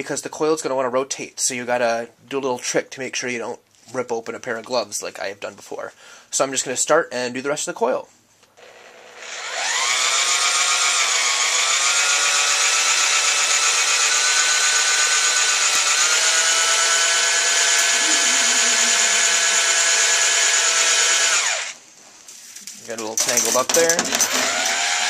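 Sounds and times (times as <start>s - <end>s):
electric drill whining: 8.6s - 21.8s, 24.4s - 25.0s.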